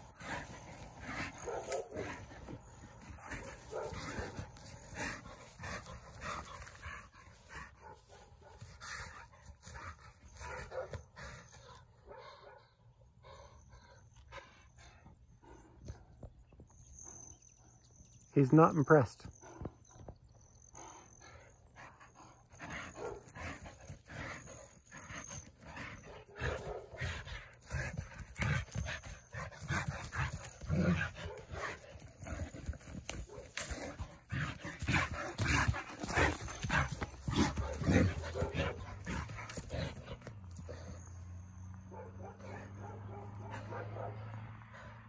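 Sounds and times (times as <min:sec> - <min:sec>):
dog paws scraping dirt: 0:00.0 - 0:11.8, 0:22.6 - 0:41.1
low dog vocal sounds: 0:20.8 - 0:41.2.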